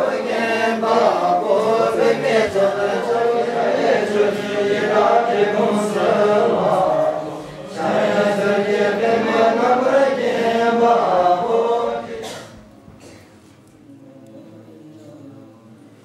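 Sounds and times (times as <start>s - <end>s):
monks chanting in unison: 0.0s - 12.6s.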